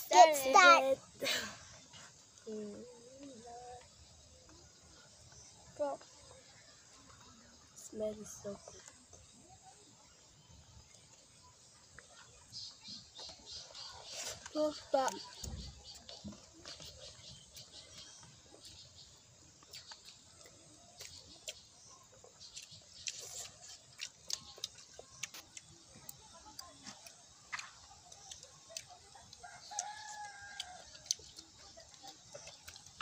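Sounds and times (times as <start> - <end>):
smacking and chewing: 13.1 - 33.0.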